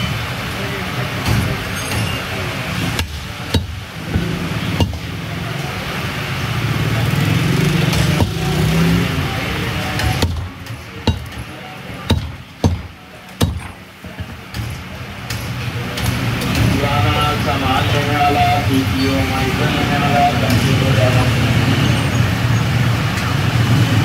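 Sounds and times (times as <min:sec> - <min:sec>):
background din: 0:01.1 - 0:06.4, 0:07.0 - 0:22.0
cleaver chopping on wooden block: 0:10.0 - 0:11.5, 0:12.1 - 0:13.8.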